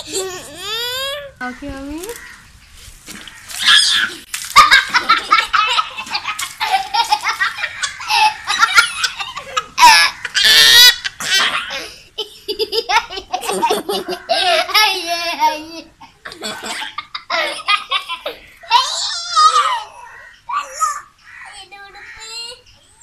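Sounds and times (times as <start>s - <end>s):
young children giggling: 0.0s - 1.1s, 4.0s - 19.9s.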